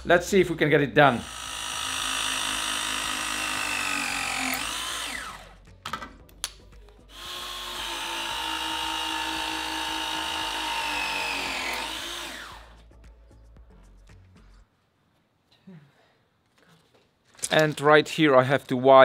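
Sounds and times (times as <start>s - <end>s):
press tool motor whining: 1.2s - 5.6s, 7.1s - 12.8s.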